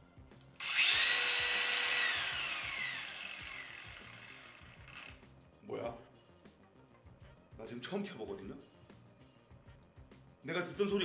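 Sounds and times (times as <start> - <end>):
angle grinder whining: 0.6 - 5.2.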